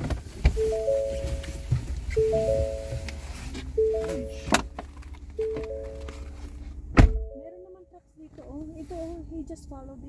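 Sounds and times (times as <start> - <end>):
three-tone vehicle warning chime: 0.5 - 8.0.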